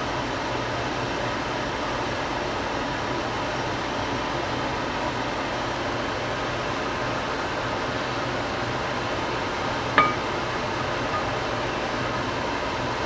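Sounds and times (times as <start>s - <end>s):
fan whirring: 5.8s - 13.0s.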